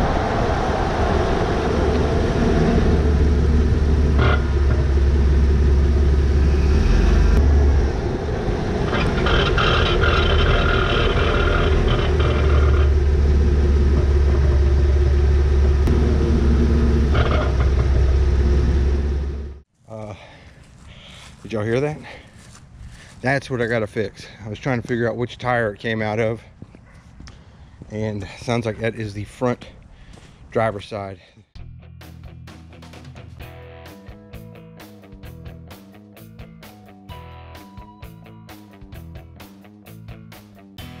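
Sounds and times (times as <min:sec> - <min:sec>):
truck road and wind rumble: 0:00.0 - 0:19.7
metallic brake grinding: 0:08.8 - 0:19.6.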